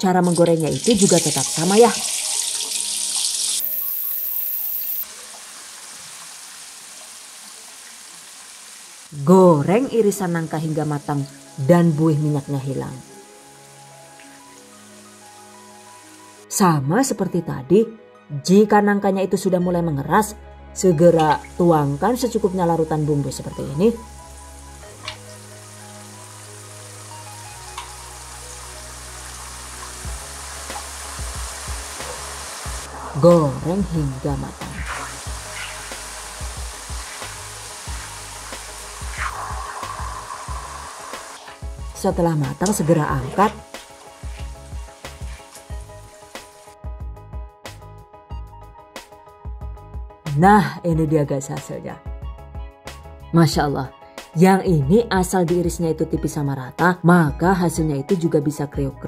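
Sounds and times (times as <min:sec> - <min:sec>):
background music: 0:00.0 - 0:05.5, 0:09.1 - 0:59.0
deep-frying sizzle: 0:00.1 - 0:09.1, 0:23.8 - 0:46.8.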